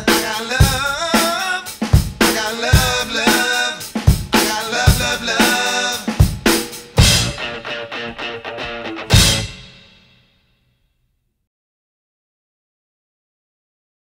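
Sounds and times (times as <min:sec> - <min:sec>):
drum kit beat: 0:00.0 - 0:10.2.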